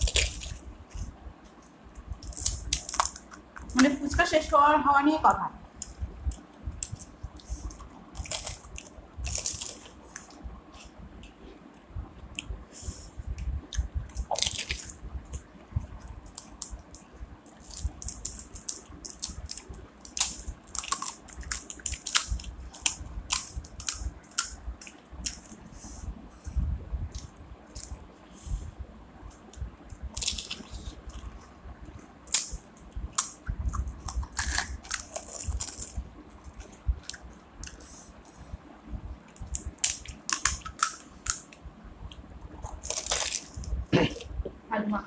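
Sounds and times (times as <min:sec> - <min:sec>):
crisp shells cracking: 0:00.0 - 0:00.6, 0:02.2 - 0:03.9, 0:08.1 - 0:09.9, 0:14.1 - 0:15.5, 0:16.2 - 0:25.5, 0:30.1 - 0:30.7, 0:32.2 - 0:37.8, 0:39.3 - 0:41.6, 0:42.7 - 0:43.6.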